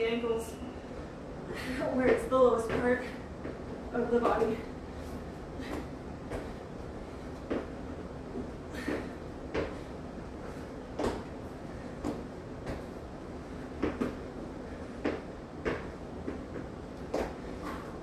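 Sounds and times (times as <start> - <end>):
thumps on exercise mat: 10.9 - 11.4, 13.8 - 14.2.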